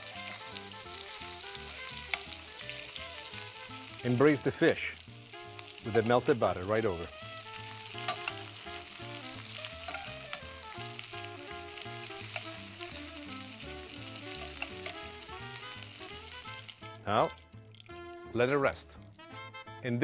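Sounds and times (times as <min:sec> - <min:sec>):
fish sizzling in oil: 0:00.0 - 0:18.3
oil spattering and crackling: 0:00.0 - 0:19.3
light background music: 0:00.0 - 0:20.0.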